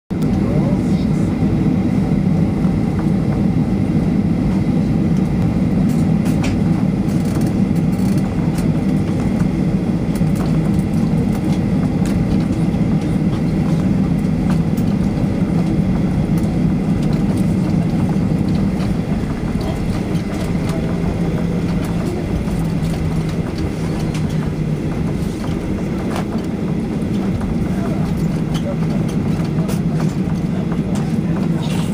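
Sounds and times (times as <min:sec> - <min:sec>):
jet engines droning: 0:00.1 - 0:31.9
wheels rumbling: 0:10.4 - 0:31.9.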